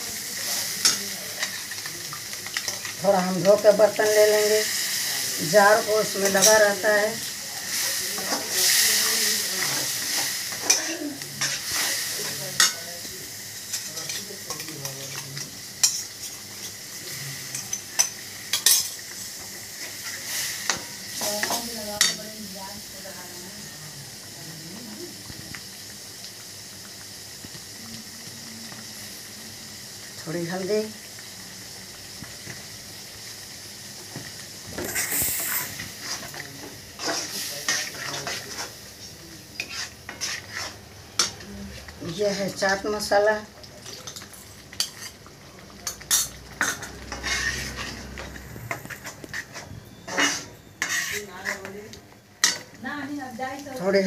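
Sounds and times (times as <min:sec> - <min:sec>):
spices sizzling in a pan: 0:00.0 - 0:54.0
metal spatula scraping a pan: 0:07.7 - 0:12.8, 0:34.8 - 0:38.8, 0:39.6 - 0:41.4, 0:45.9 - 0:51.8
water poured into hot pan: 0:24.0 - 0:39.3, 0:41.6 - 0:49.3.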